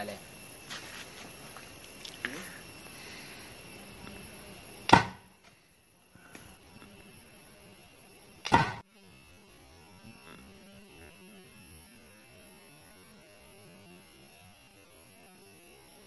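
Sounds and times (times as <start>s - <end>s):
faint electrical hum: 0.0s - 8.4s.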